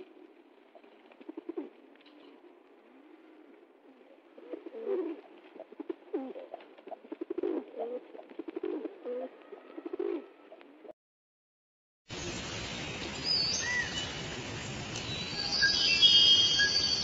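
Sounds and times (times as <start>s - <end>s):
pigeon cooing: 0.0s - 10.9s.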